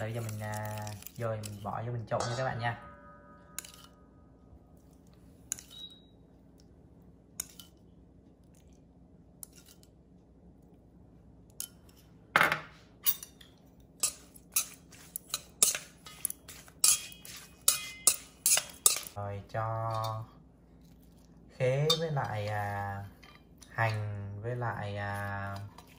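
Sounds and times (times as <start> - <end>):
chopsticks clinking in metal bowl: 0.0 - 4.0, 13.0 - 20.3, 21.8 - 24.1.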